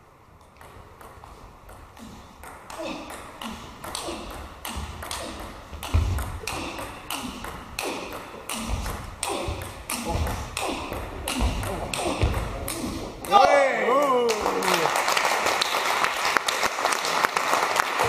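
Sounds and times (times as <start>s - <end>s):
footwork thuds on floor: 5.8s - 6.7s, 8.6s - 12.6s.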